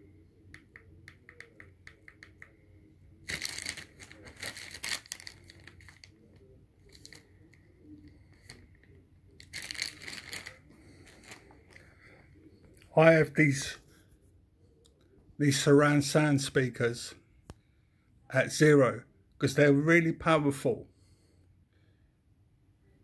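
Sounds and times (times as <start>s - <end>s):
rustling: 9.4s - 11.8s.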